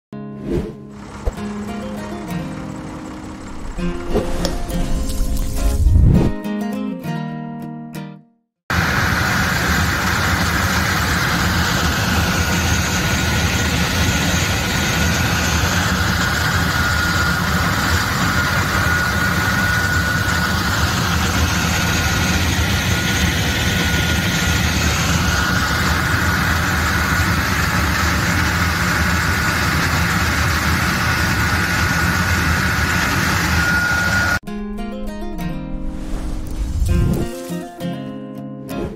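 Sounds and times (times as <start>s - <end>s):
tractor engine drone: 0.6s - 6.1s, 8.7s - 37.5s
sprayer fan rushing and whining: 0.9s - 5.9s, 8.7s - 34.4s.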